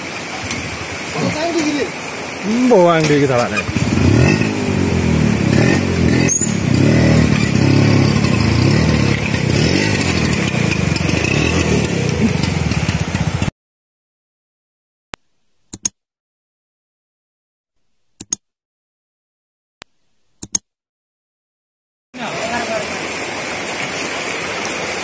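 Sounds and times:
scooter engine revving: 3.6s - 13.5s.

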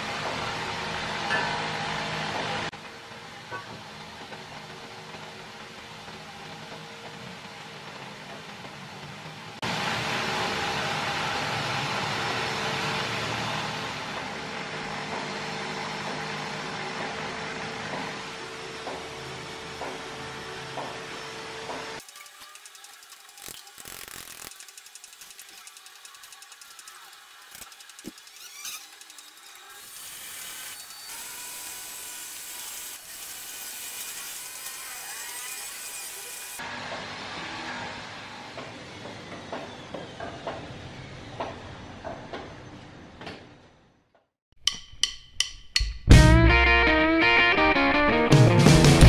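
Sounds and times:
machine hissing: 22.0s - 29.4s.

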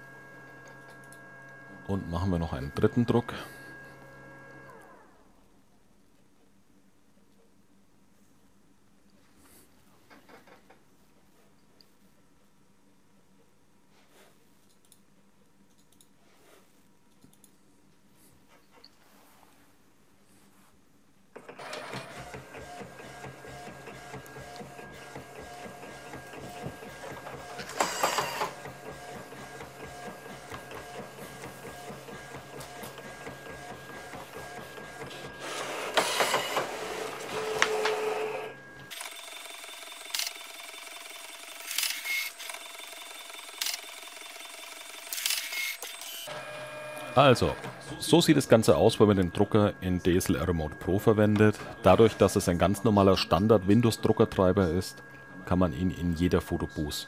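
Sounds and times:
photo printer running with hum: 0.0s - 5.4s, 21.4s - 56.9s
printer clicks: 21.4s - 38.4s.

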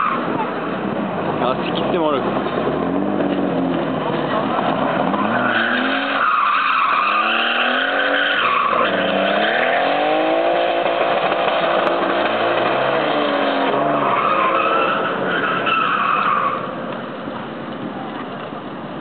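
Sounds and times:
car engine revving: 0.1s - 16.7s
tyres squealing: 5.0s - 9.7s, 13.7s - 16.8s.

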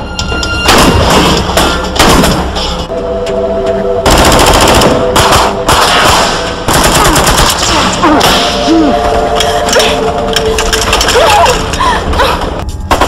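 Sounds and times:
gunfire bursts: 4.1s - 8.0s.

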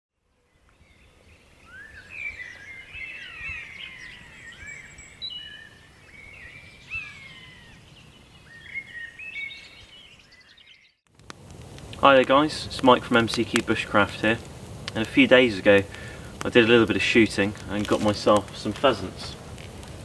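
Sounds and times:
small birds singing and chirping: 0.3s - 11.0s.

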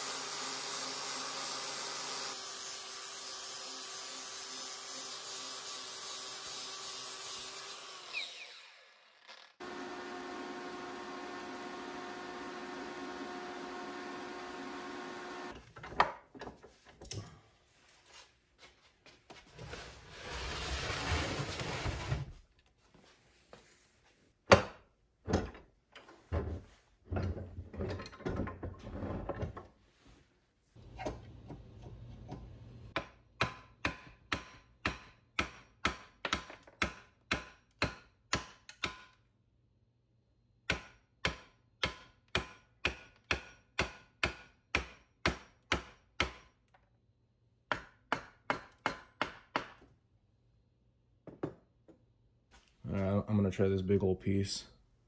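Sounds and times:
wood striking hatchet blade: 33.0s - 39.2s, 40.7s - 46.5s, 47.7s - 49.8s.

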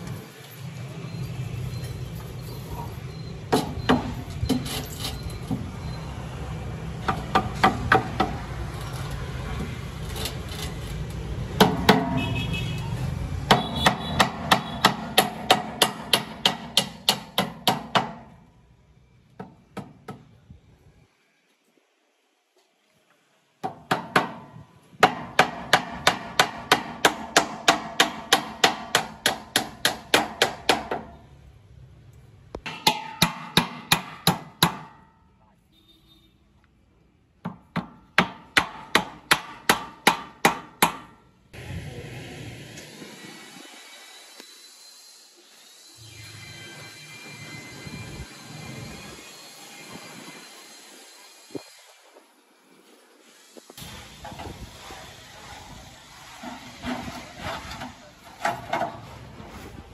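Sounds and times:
traffic rumble: 0.0s - 15.1s, 30.8s - 32.6s
hammer knocking: 11.6s - 12.2s, 23.6s - 31.1s, 32.7s - 35.0s.

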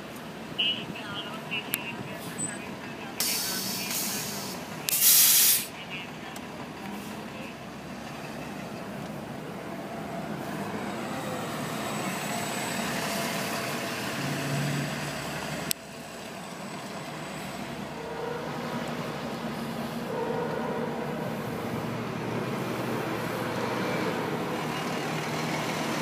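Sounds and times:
bus driving past: 0.0s - 26.0s
air hiss: 3.2s - 5.7s.

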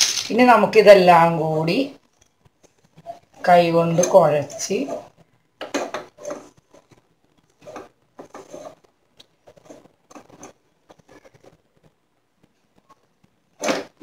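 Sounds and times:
hand mixing dry food in bowl: 0.0s - 0.9s.

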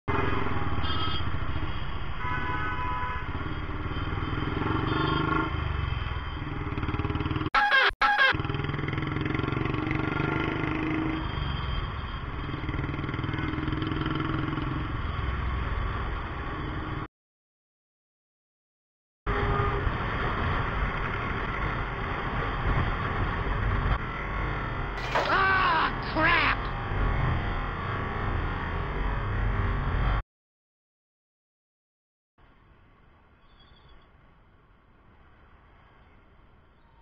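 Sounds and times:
road and wind noise: 0.1s - 7.5s, 8.1s - 17.1s, 19.3s - 30.2s, 32.4s - 37.0s
vehicle horns honking: 7.6s - 8.5s.

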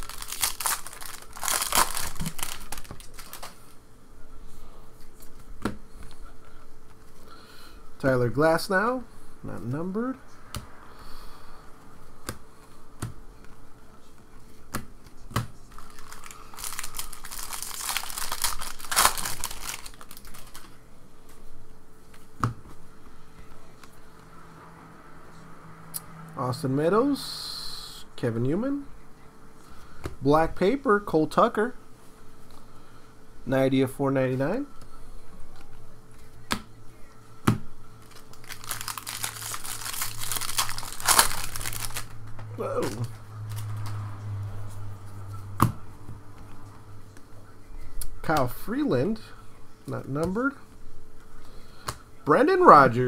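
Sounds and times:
card pack wrapper crinkling and tearing: 0.0s - 3.8s, 15.7s - 20.8s, 38.0s - 42.2s, 42.8s - 44.0s.

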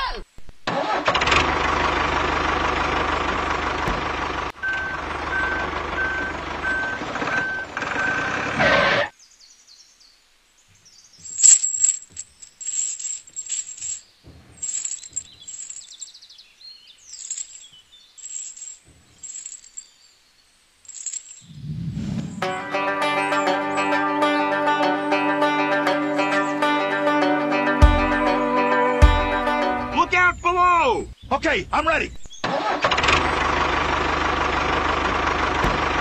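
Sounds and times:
heavy vehicle engine running: 0.8s - 9.0s, 32.6s - 36.0s
reversing beeps: 4.6s - 8.6s
small metal chain clinking: 11.2s - 16.3s, 17.0s - 20.0s, 20.8s - 21.5s.

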